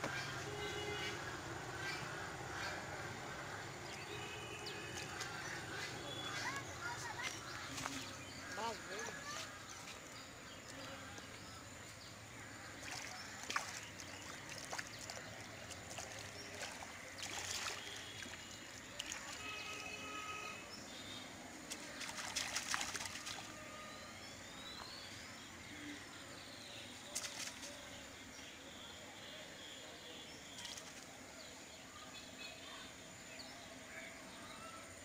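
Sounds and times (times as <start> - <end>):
water trickling and sloshing: 0.0 - 24.9
water splashes: 0.7 - 10.0, 10.6 - 23.9, 27.0 - 28.0, 30.4 - 31.3.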